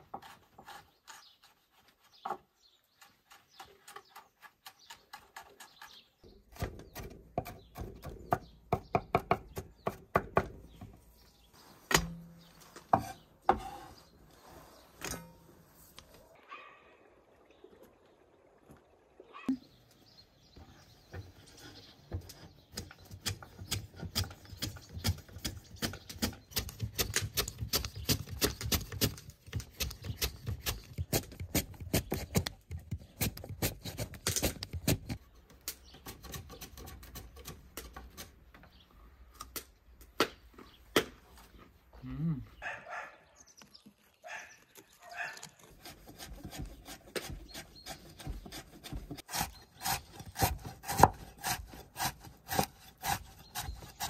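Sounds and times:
knife chopping on wooden board: 45.8s - 54.0s.

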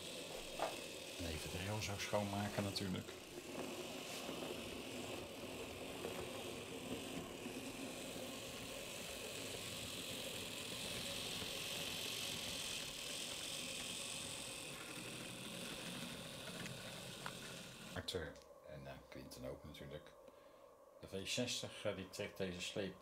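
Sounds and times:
wheels rattling over rail joints: 0.0s - 18.0s
electric motor whir: 0.0s - 18.1s.

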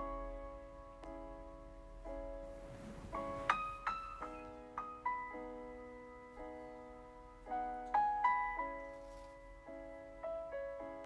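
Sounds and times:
slow gentle solo piano: 0.0s - 11.0s.

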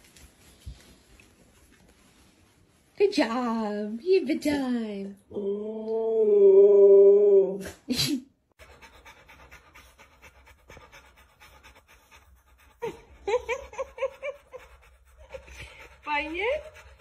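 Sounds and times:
dog panting: 8.6s - 17.0s.

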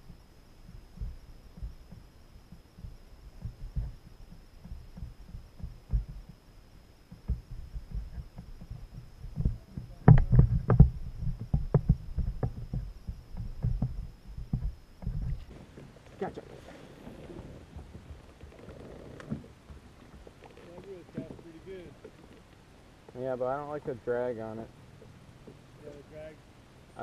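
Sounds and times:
thumps and knocks on kayak: 0.7s - 6.4s, 7.1s - 16.3s, 17.0s - 22.5s.

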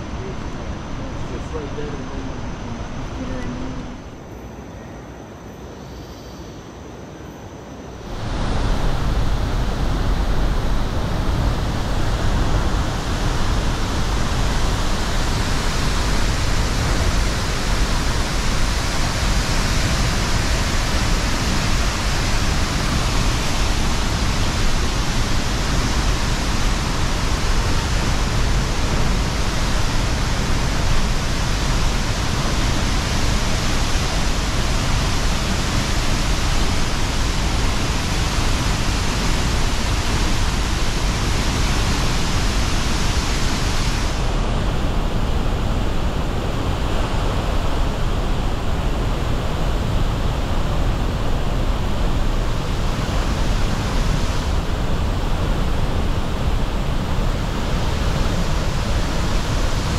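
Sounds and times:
waterfall rushing: 8.1s - 48.5s, 49.1s - 59.9s.

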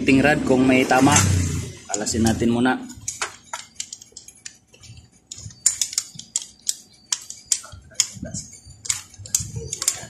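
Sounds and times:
screwdriver clicking on metal: 3.0s - 10.0s.

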